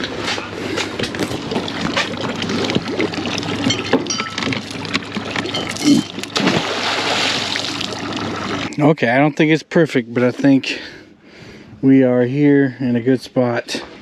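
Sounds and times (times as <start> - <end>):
water splashing and dripping: 0.9 - 8.7
chain clinking: 3.7 - 6.3.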